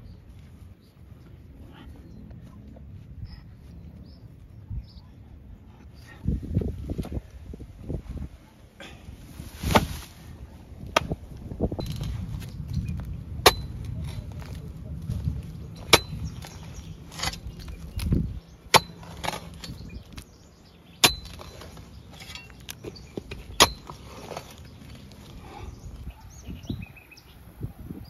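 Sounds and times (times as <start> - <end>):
spade scraping soil: 9.2 - 10.2, 11.8 - 25.7
spade chopping into soil: 9.6 - 10.1, 10.9 - 11.2, 11.8 - 20.3, 21.0 - 24.7.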